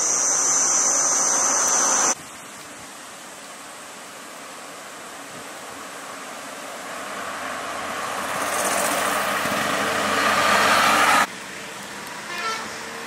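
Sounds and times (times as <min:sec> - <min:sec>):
road noise: 0:00.0 - 0:13.0
truck passing by: 0:06.4 - 0:13.0.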